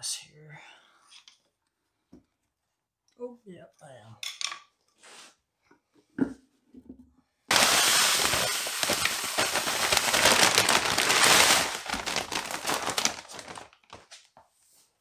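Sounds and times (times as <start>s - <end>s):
cat litter pouring onto concrete: 7.5s - 13.9s.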